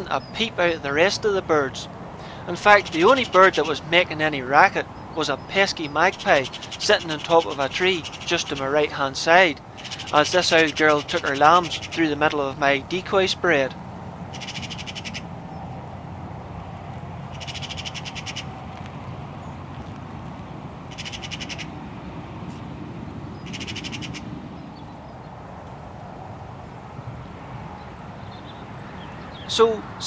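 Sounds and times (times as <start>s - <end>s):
low background noise: 0.0s - 30.0s
magpie chattering: 2.2s - 12.6s, 14.3s - 15.3s, 17.3s - 18.5s, 20.9s - 21.8s, 23.4s - 24.3s.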